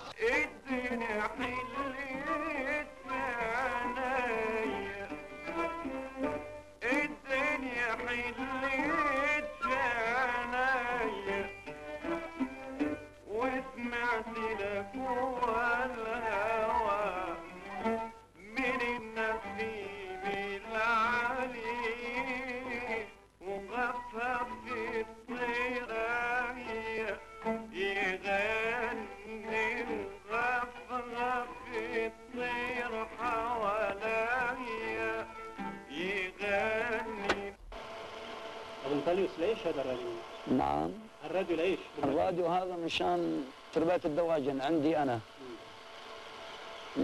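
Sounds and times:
person singing ornamented melody: 0:00.0 - 0:37.6
instrumental accompaniment: 0:00.0 - 0:47.0.

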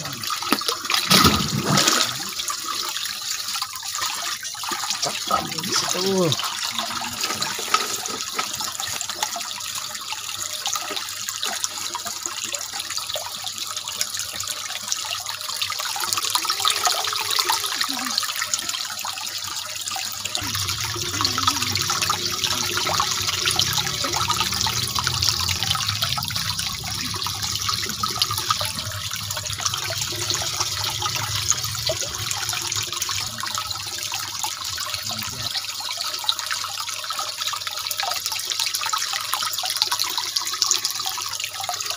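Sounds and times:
running water: 0:00.0 - 0:41.9
low rumble: 0:20.4 - 0:33.4.

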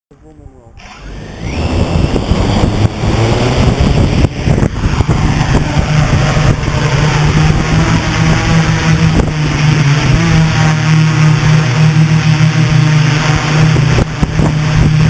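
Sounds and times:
drone motors humming: 0:00.6 - 0:15.0
propeller wash rushing: 0:00.8 - 0:15.0.

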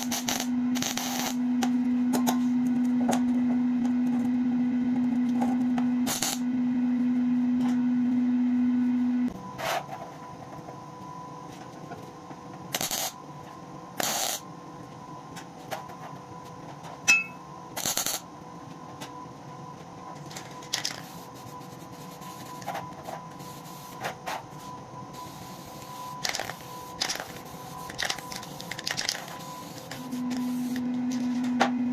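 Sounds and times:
spray paint can hissing: 0:25.4 - 0:30.8.

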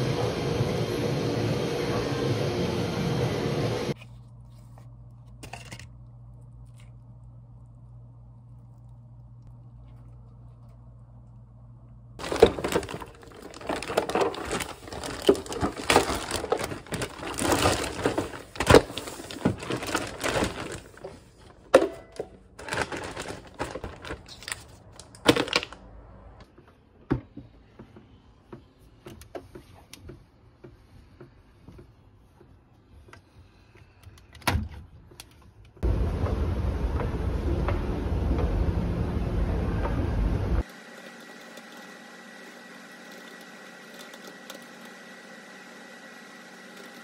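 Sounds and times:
faint low hum: 0:04.0 - 0:12.2
dense crinkling: 0:08.6 - 0:25.8.

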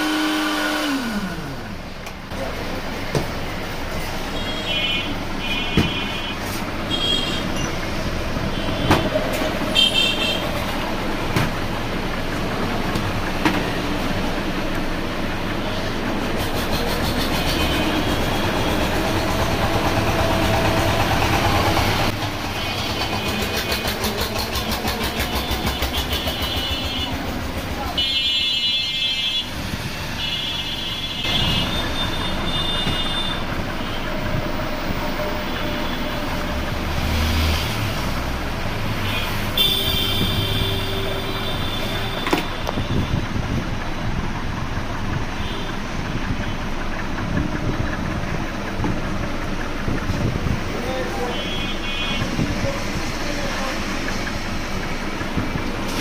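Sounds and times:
passing vehicle engines: 0:00.0 - 0:28.0, 0:31.2 - 0:56.0
street traffic: 0:00.0 - 0:56.0
short high vehicle horn beeps: 0:04.3 - 0:07.8, 0:25.2 - 0:27.3, 0:28.0 - 0:34.2, 0:39.0 - 0:43.2, 0:51.2 - 0:52.4.

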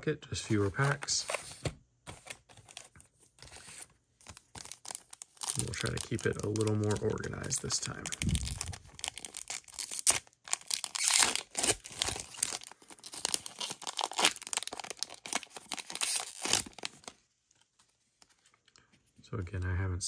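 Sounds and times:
wrappers ripping and crinkling: 0:04.2 - 0:17.1.

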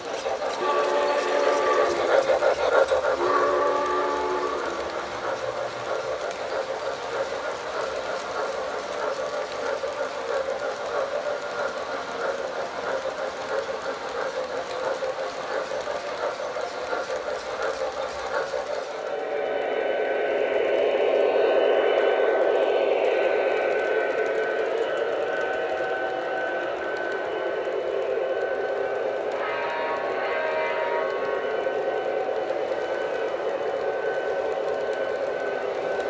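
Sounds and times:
model train rattling over track: 0:00.0 - 0:36.0
model train whistle: 0:00.5 - 0:05.4, 0:25.4 - 0:35.7.

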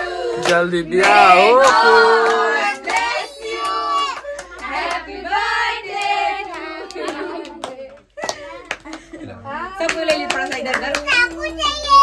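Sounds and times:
children and adults singing: 0:00.0 - 0:08.2
hand claps: 0:00.4 - 0:05.0, 0:06.0 - 0:09.2, 0:09.8 - 0:11.4.

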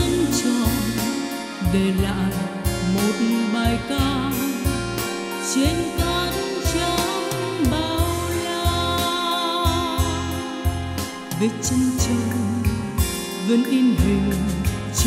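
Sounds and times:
instrumental music with beat: 0:00.0 - 0:15.0.

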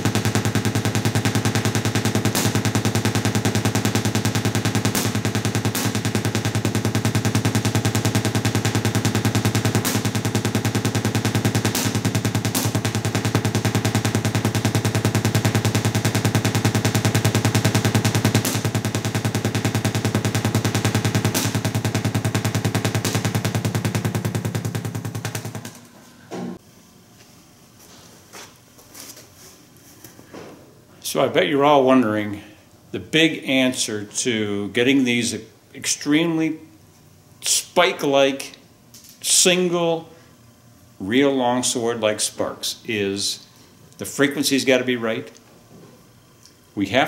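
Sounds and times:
spark cracks: 0:00.0 - 0:25.9
tesla coil spark buzz: 0:00.0 - 0:26.0.

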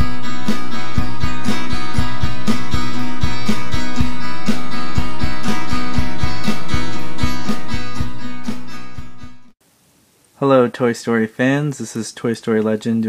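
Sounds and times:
guitar tune over a beat: 0:00.0 - 0:09.6.

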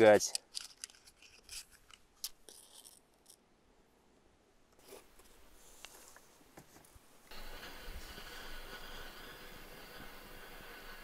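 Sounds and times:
lighter scratch: 0:07.3 - 0:11.0.

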